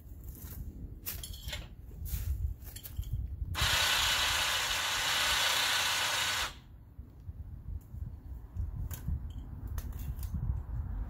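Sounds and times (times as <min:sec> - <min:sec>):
electric winch running: 0:03.6 - 0:06.6.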